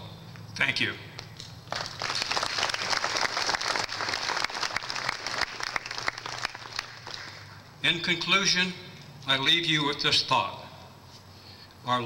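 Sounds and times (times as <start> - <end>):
audience applauding: 1.7 - 7.5.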